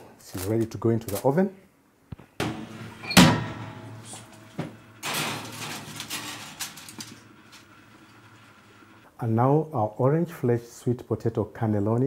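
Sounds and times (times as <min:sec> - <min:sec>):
oven door clunk: 0:02.4 - 0:07.2
baking dish scraping on oven rack: 0:02.4 - 0:08.4.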